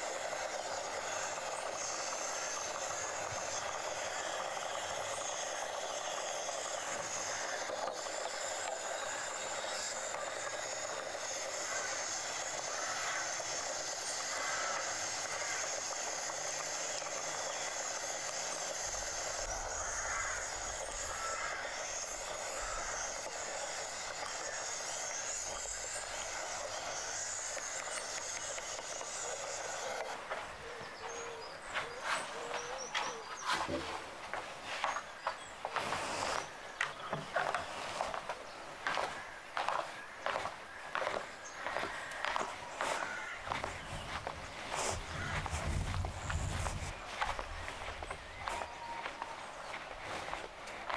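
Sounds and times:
gas burner flame hissing: 0.0 - 30.2
sharp clicks: 0.0 - 30.2.

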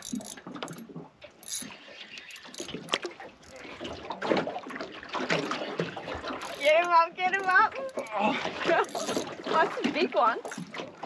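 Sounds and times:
fishing reel cranking and clicking: 0.0 - 3.8, 6.4 - 9.4, 10.4 - 10.7
water lapping: 0.0 - 11.0.

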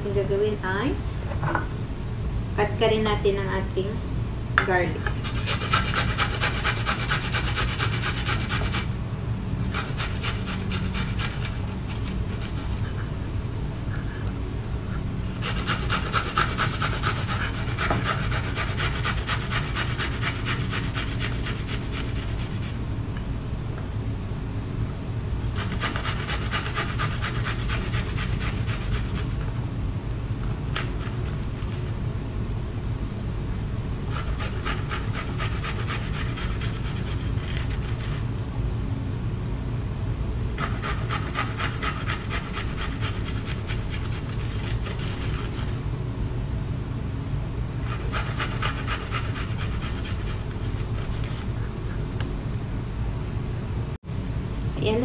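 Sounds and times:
steady low hum: 0.0 - 55.0
garlic rasping on metal grater: 5.1 - 8.9, 9.7 - 12.9, 15.3 - 22.8, 25.6 - 29.4, 34.1 - 38.2, 40.6 - 45.8, 47.9 - 51.5.

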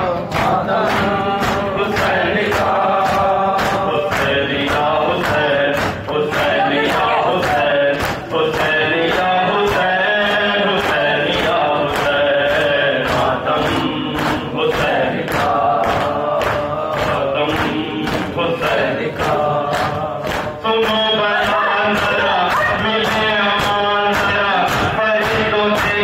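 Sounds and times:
men chanting: 0.0 - 26.0
hands slapping chests: 0.3 - 26.0.

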